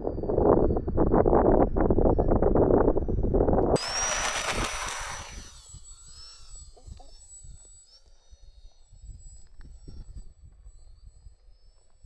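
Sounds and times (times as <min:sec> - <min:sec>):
model plane motor whining: 0:03.8 - 0:10.2.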